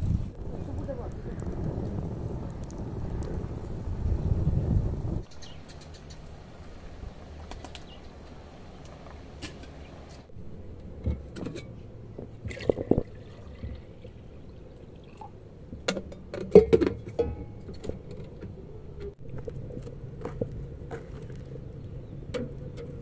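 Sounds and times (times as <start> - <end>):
liquid sloshing: 12.2 - 15.4.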